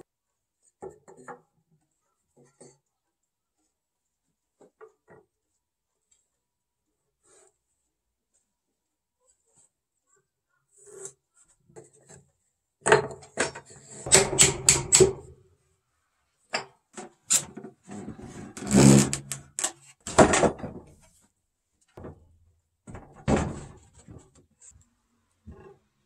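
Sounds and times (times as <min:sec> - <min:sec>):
wooden boards knocking: 0:14.1 - 0:15.3
wood sliding on wood: 0:18.2 - 0:19.4.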